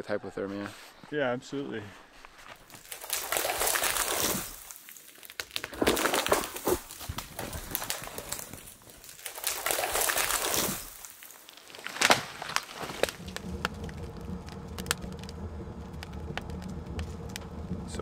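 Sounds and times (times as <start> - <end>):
footsteps crunching in snow: 0.5 - 13.7.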